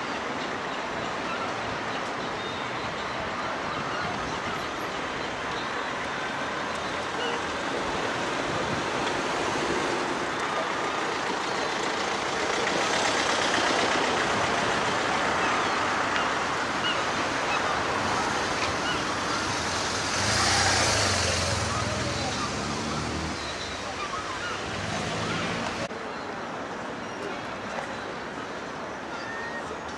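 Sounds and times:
road traffic noise: 0.0 - 29.9
vehicle passing close: 19.2 - 23.5.

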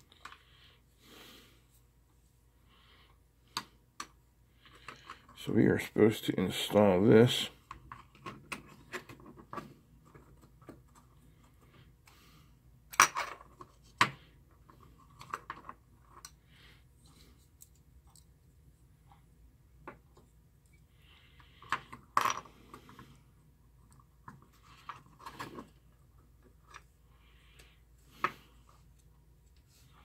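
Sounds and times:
plastic parts clicking and knocking: 3.5 - 5.4, 7.6 - 11.6, 12.9 - 16.4, 21.4 - 23.1, 23.8 - 26.9.

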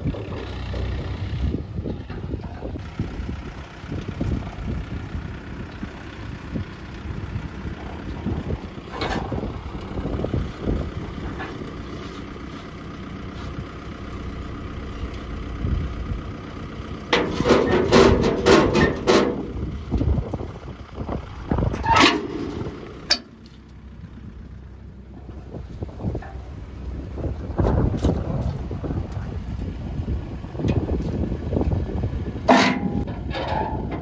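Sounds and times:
heavy diesel engine running: 0.0 - 34.0
loud knocks and rattles: 17.2 - 19.6.

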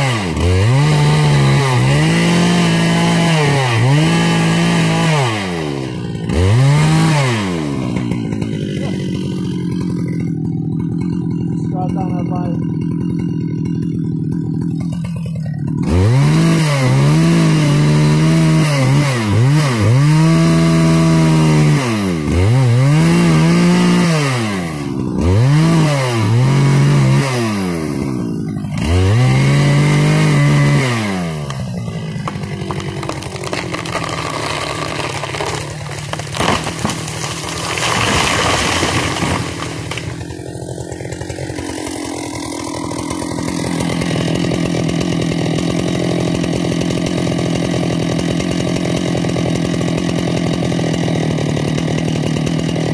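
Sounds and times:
chainsaw idling: 0.0 - 52.9
chainsaw revving and cutting wood: 0.0 - 52.9
crackling of tree falling: 31.3 - 43.8.

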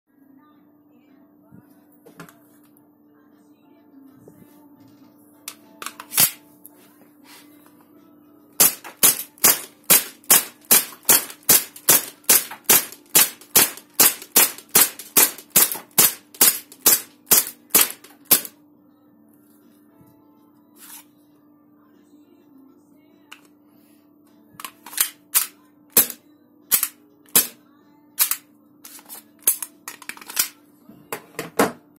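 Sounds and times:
pistol handling clicks: 5.8 - 6.4, 24.6 - 27.6, 28.2 - 28.4, 29.4 - 30.6
airsoft pistol shots: 8.6 - 18.5.

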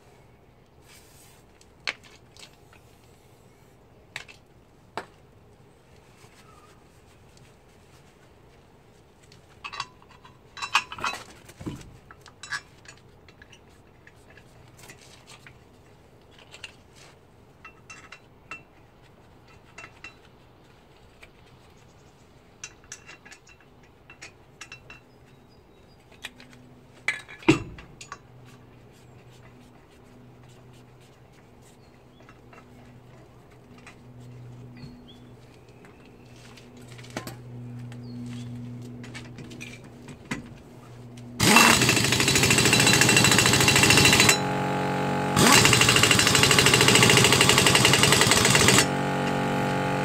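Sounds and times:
metallic clinks of wheel nuts: 9.6 - 11.3, 17.6 - 18.8, 22.6 - 25.2, 41.4 - 44.6, 45.4 - 48.9
tools clattering on wheel hub: 9.6 - 15.5, 17.6 - 20.3, 22.6 - 25.2, 27.0 - 28.5.

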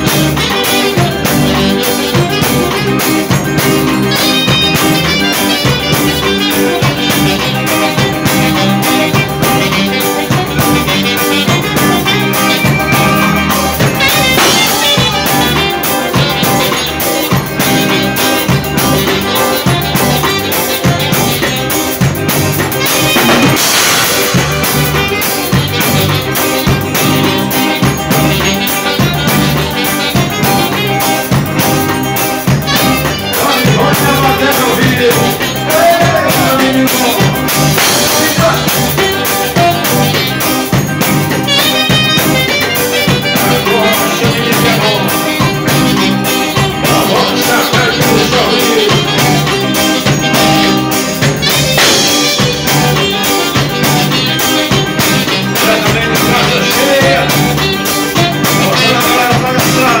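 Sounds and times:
drum kit beat: 0.0 - 60.0
electric guitar: 0.0 - 60.0
person singing: 32.8 - 40.3, 42.2 - 50.4, 51.9 - 60.0.

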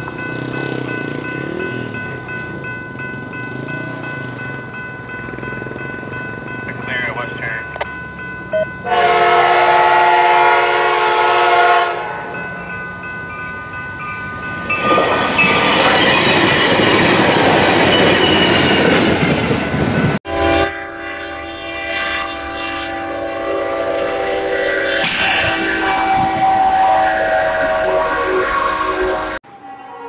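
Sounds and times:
train rushing past: 0.0 - 30.0
locomotive horn blowing: 8.8 - 12.4, 20.3 - 30.0
train horn blowing: 8.8 - 12.4, 20.2 - 30.0.

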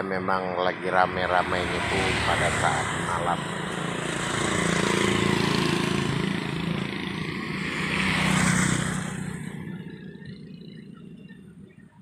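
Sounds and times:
vehicle passing by: 0.0 - 11.6.

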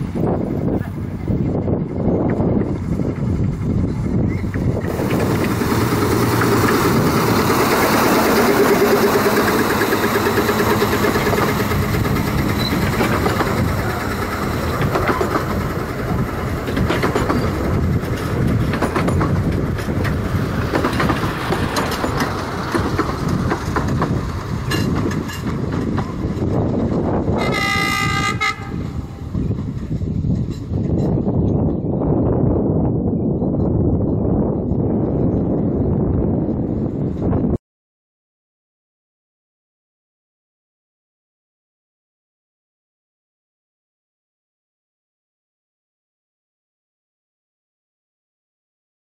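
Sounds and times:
locomotive engine running: 0.0 - 32.0
wheels clicking over rail joints: 1.6 - 28.6, 29.3 - 31.9
locomotive horn chord: 27.4 - 29.1.

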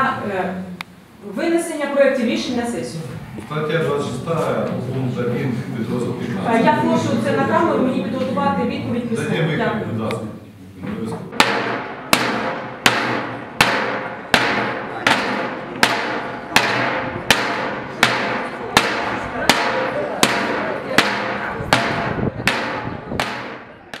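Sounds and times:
sticks beating steel barrels: 11.3 - 24.0.

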